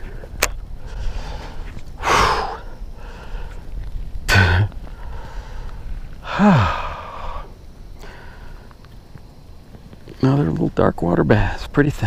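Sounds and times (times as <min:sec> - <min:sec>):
man breathing hard: 0:00.0 - 0:08.7
man grunting: 0:04.3 - 0:04.7, 0:06.3 - 0:07.2.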